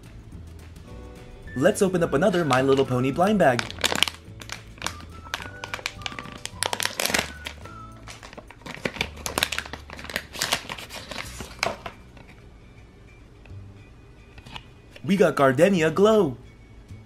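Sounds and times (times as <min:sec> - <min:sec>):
background music with bass line: 0:00.0 - 0:08.2
plastic wrapper crinkling: 0:02.2 - 0:12.4.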